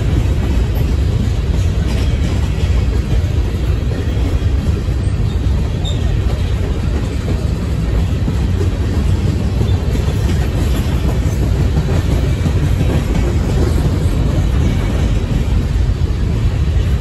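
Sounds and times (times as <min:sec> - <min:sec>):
freight train rumbling past: 0:00.0 - 0:17.0.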